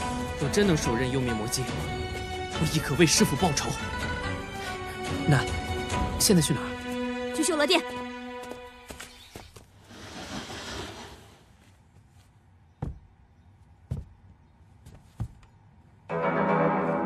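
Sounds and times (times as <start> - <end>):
heavy footsteps: 7.9 - 9.7, 11.6 - 13.2, 13.8 - 15.5
sustained music chord: 16.1 - 17.0.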